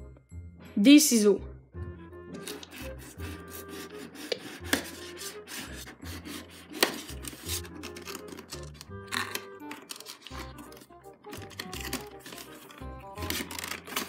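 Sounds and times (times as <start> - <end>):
scissors cutting plastic wrap: 2.4 - 14.0
scissors clicks: 6.8 - 12.4, 13.2 - 14.0.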